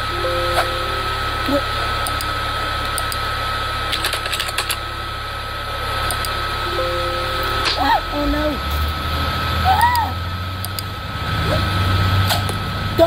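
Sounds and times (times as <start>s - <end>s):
computer alert chime: 0.0s - 2.3s, 6.7s - 8.6s
high whine and hiss: 0.0s - 11.4s
keyboard typing clicks: 2.0s - 3.2s.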